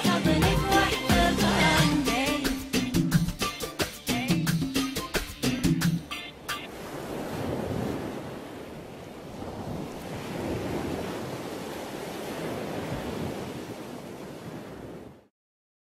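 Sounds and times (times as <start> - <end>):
song beat: 0.0 - 6.7.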